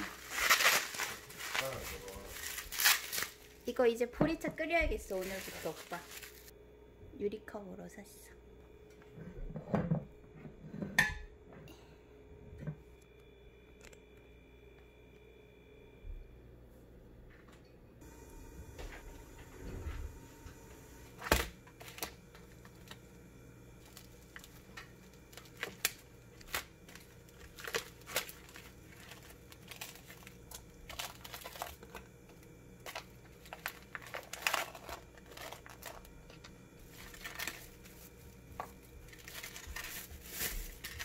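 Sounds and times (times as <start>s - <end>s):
plastic wrap crinkling: 0.0s - 3.8s, 4.9s - 6.5s, 21.1s - 23.2s, 23.8s - 41.0s.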